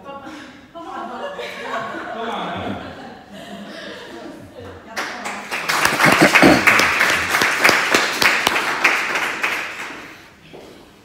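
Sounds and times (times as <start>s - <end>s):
audience applauding: 5.2s - 10.2s.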